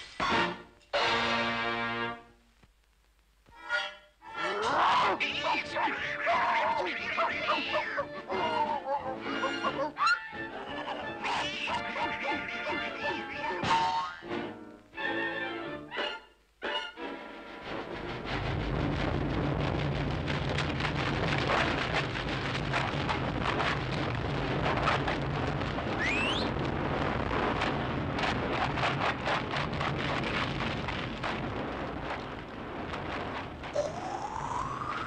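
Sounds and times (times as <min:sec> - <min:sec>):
low rumble: 0:17.6 - 0:35.0
rising whistle: 0:26.0 - 0:26.5.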